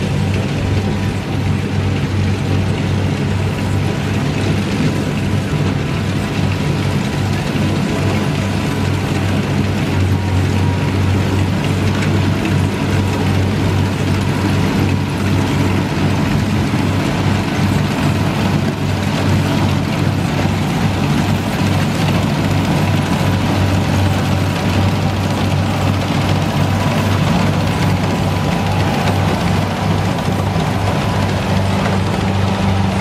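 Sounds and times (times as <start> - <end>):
combine harvester engine humming: 0.0 - 33.0.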